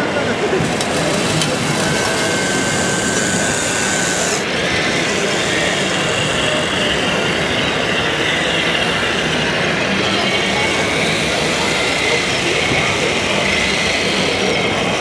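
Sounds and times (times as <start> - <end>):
din of busy hall: 0.0 - 15.0
electric motors whining: 0.5 - 15.0.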